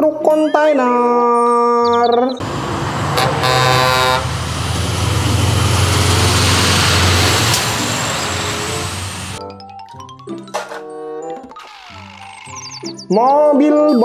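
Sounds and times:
diesel truck engine hum: 0:02.4 - 0:09.4
tyre and road noise: 0:02.4 - 0:09.4
truck horn toot: 0:02.9 - 0:09.4.

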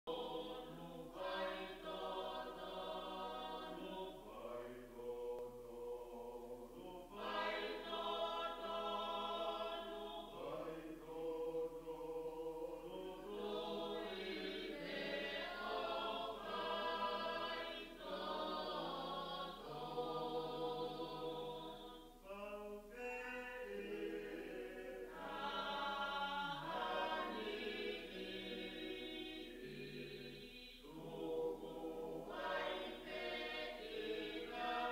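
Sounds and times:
choir singing a hymn: 0:00.1 - 0:34.9.

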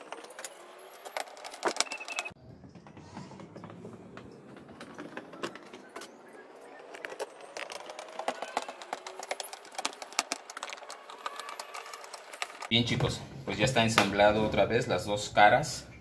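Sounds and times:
metal scraping on plastic: 0:02.8 - 0:12.7.

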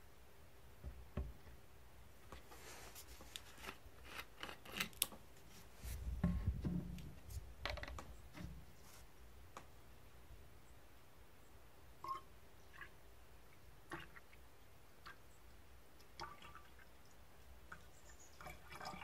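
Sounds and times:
short rustle: 0:02.3 - 0:03.8.

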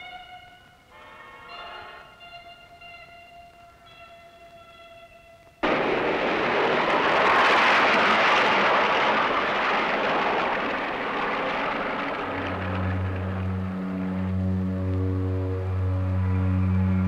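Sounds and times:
low musical drone: 0:00.0 - 0:05.5, 0:12.2 - 0:17.0.

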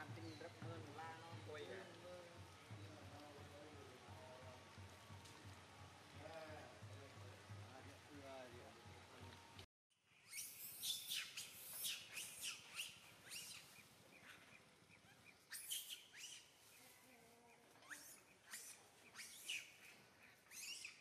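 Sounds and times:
small birds chirping: 0:00.0 - 0:04.4, 0:10.1 - 0:21.0.

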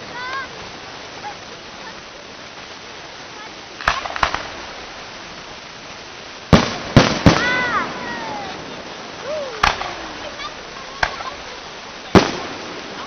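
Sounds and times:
firework bangs: 0:03.8 - 0:13.0.

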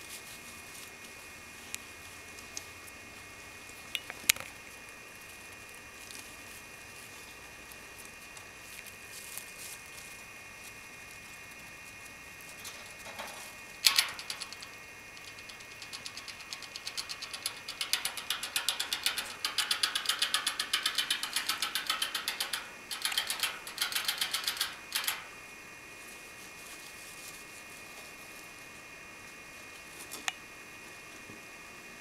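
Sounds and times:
rhythmic clicking in rodent cage: 0:10.6 - 0:25.5.

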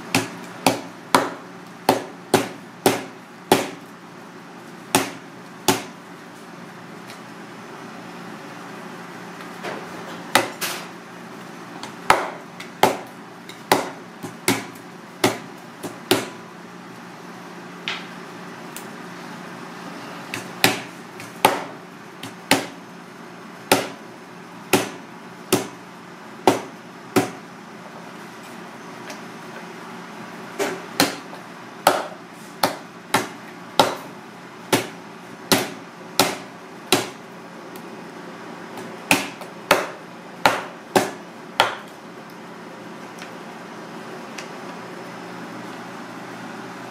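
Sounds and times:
knife chopping fish bones on board: 0:00.1 - 0:03.8, 0:12.1 - 0:16.3, 0:23.7 - 0:24.0, 0:34.7 - 0:34.9, 0:35.5 - 0:37.2, 0:38.8 - 0:41.9.

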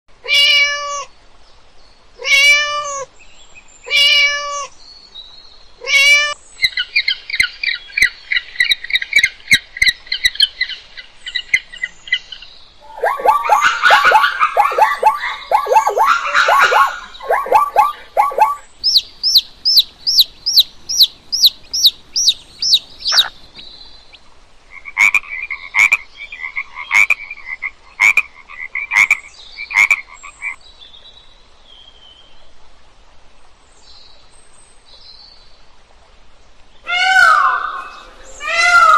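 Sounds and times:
cat meowing: 0:00.2 - 0:01.1, 0:02.2 - 0:03.1, 0:03.9 - 0:04.7
penguin calling: 0:12.8 - 0:23.4
high chirping notes: 0:12.8 - 0:23.5
baby chicks peeping: 0:13.0 - 0:23.5.

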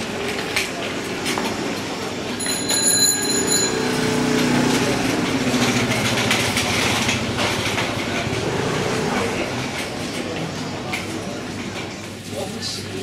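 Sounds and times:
scooter engine running: 0:00.0 - 0:12.8
market crowd noise: 0:00.0 - 0:13.0
high ringing tone: 0:02.3 - 0:04.8.

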